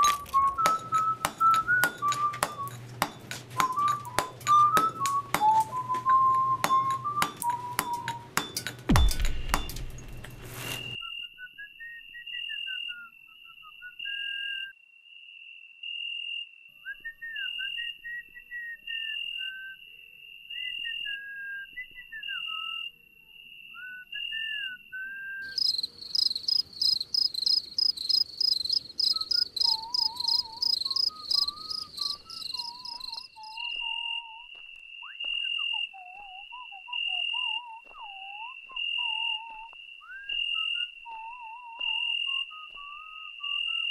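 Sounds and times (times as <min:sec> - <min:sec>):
gliding whistle-like melody: 0:00.0 - 0:09.8, 0:10.6 - 0:14.8, 0:29.0 - 0:43.9
cricket-like chirping: 0:09.0 - 0:43.9
fast insect-like trill with hiss: 0:25.5 - 0:33.6.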